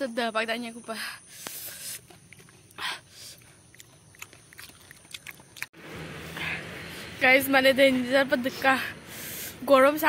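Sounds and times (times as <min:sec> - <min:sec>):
person chewing: 0:01.4 - 0:05.7.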